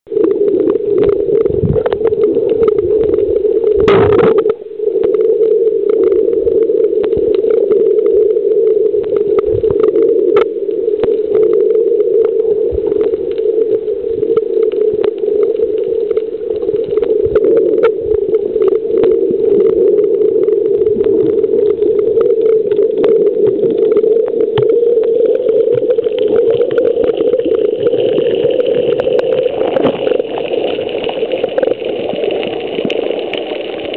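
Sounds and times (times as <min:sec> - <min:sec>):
muffled underwater hum: 0:00.1 - 0:33.9
water rush: 0:09.2 - 0:33.9.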